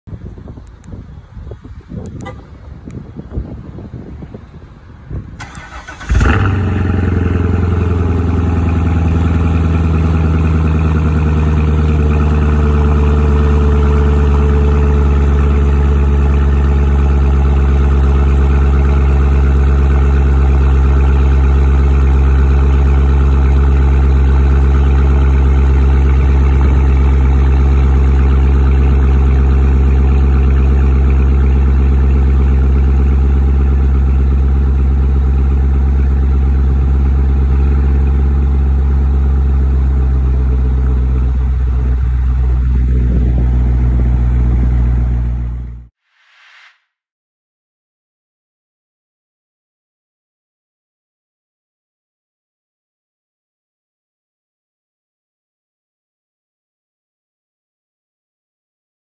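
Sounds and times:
car engine idling loudly: 5.4s - 45.9s.

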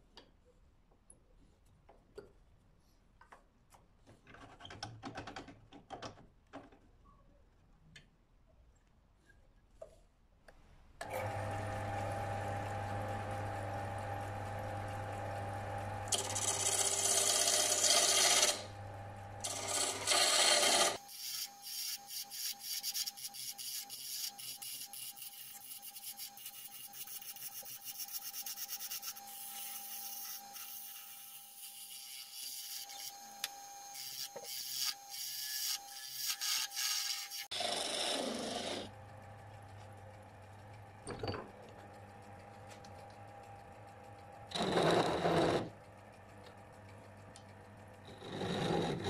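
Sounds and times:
wood lathe humming: 11.0s - 22.8s
tool cutting spinning wood: 11.0s - 40.6s, 43.4s - 46.2s, 47.6s - 49.0s.

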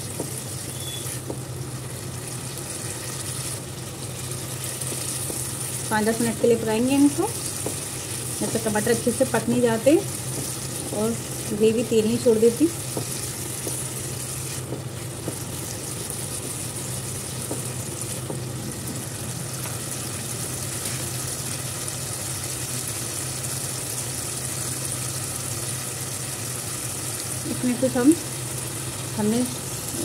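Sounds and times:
steady low hum: 0.0s - 22.9s
gravy sizzling in oil: 0.0s - 30.0s.

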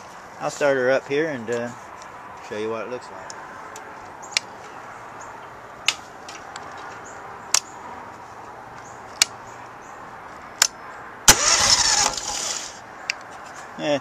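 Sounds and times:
sharp clicks: 5.8s - 7.8s, 8.8s - 9.4s
engine starter cranking: 11.3s - 12.8s.

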